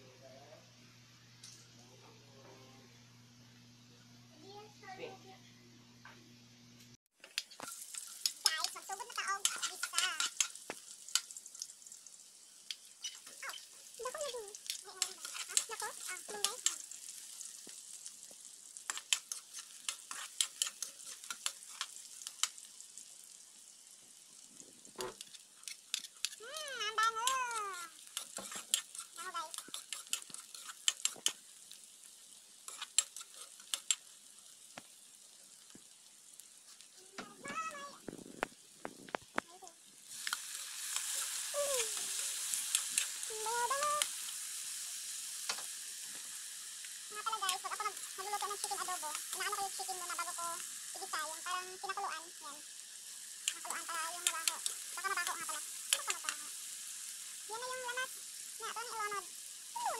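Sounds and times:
food frying in hot oil: 0:07.1 - 0:59.9
spatula scraping and clacking on pan: 0:07.2 - 0:11.7, 0:12.6 - 0:17.8, 0:18.8 - 0:22.6, 0:25.0 - 0:27.4, 0:28.0 - 0:31.4, 0:32.6 - 0:34.1.

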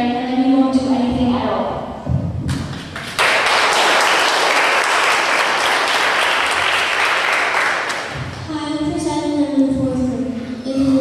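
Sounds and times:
audience applauding: 0:02.5 - 0:08.5.

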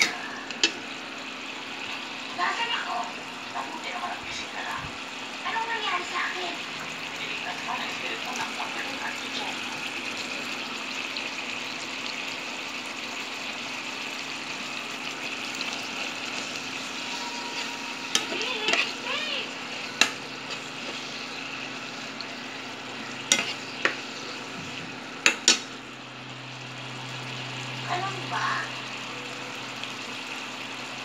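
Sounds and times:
food sizzling in a pan: 0:00.0 - 0:31.0
utensil striking pan: 0:17.3 - 0:19.0, 0:19.9 - 0:21.1, 0:23.2 - 0:24.0, 0:25.2 - 0:25.7.

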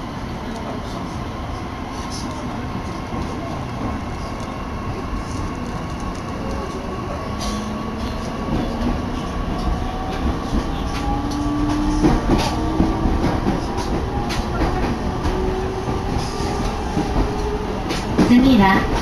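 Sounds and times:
train running rumble: 0:00.0 - 0:19.0
rail-joint clacks: 0:07.3 - 0:19.0.

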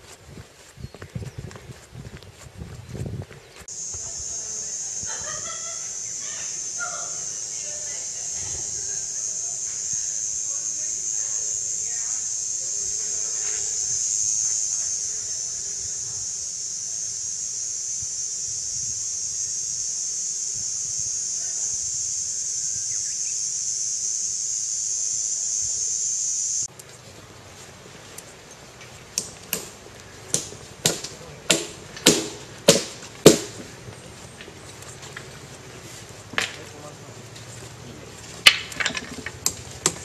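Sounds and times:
high-pitched hiss: 0:03.5 - 0:40.0
hammer blows on wooden planks: 0:29.1 - 0:33.7.

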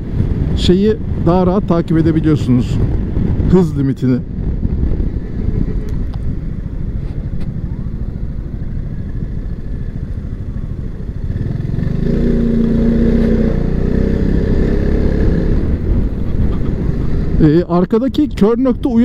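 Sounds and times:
road noise: 0:00.0 - 0:19.0.

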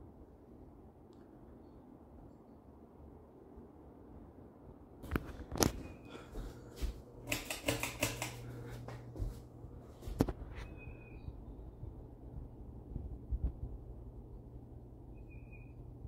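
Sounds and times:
low motor hum: 0:05.3 - 0:16.0
pull-chain switch clicking: 0:07.2 - 0:08.4.

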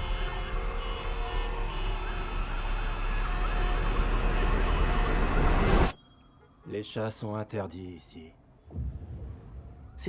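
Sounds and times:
emergency sirens wailing: 0:00.0 - 0:05.9
traffic noise: 0:00.0 - 0:10.0.

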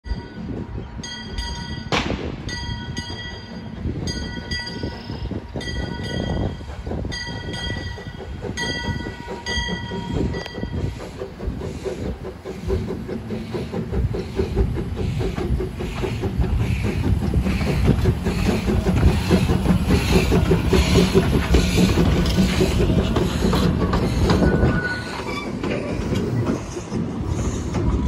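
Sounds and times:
steam locomotive bell ringing: 0:00.1 - 0:11.0
locomotive rumbling exhaust: 0:00.1 - 0:28.0.

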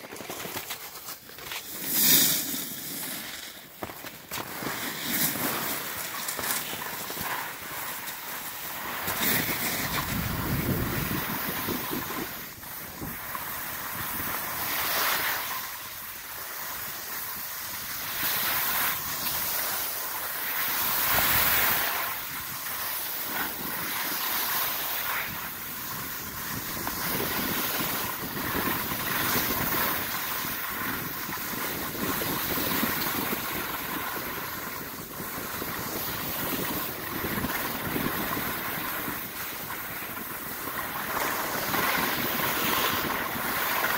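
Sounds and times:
skis scraping over packed snow: 0:00.0 - 0:43.9
wind on microphone: 0:09.1 - 0:15.3, 0:20.6 - 0:43.9.

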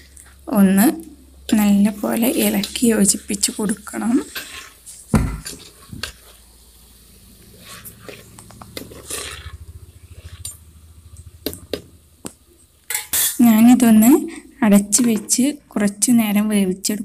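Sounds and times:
spoon stirring and scraping in pot: 0:01.5 - 0:06.7, 0:07.3 - 0:10.7, 0:11.4 - 0:13.4.

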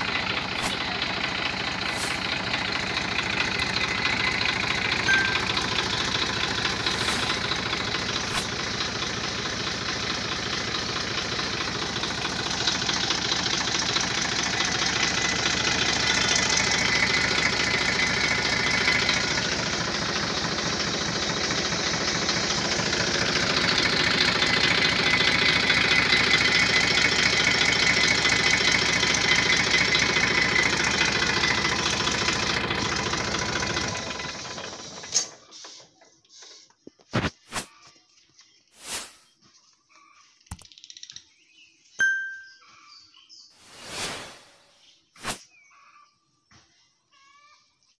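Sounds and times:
diesel tractor engine idling: 0:00.0 - 0:36.7.

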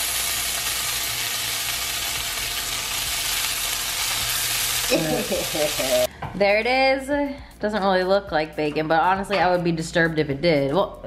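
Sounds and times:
bacon sizzling in a skillet: 0:00.0 - 0:06.1.

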